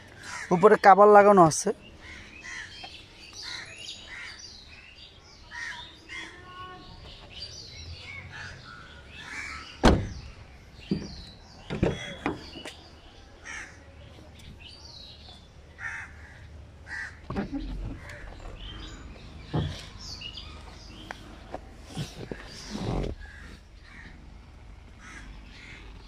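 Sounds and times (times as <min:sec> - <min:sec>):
harsh caw-like bird calls: 0:02.0 - 0:04.6, 0:05.5 - 0:06.6, 0:08.1 - 0:10.2, 0:13.4 - 0:13.9, 0:15.8 - 0:19.0, 0:23.2 - 0:24.3, 0:25.0 - 0:26.0.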